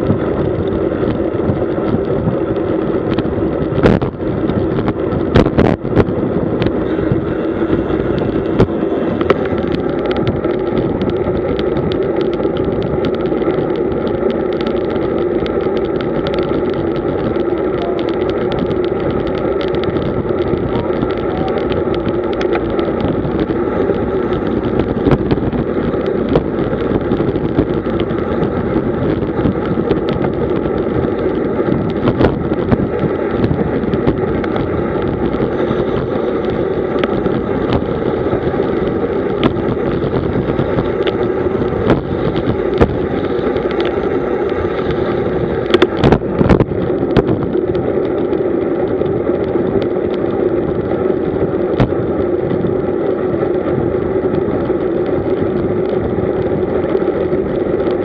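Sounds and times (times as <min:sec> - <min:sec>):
bicycle rolling on road: 0:00.0 - 0:58.0
wind noise on microphone: 0:00.0 - 0:58.0.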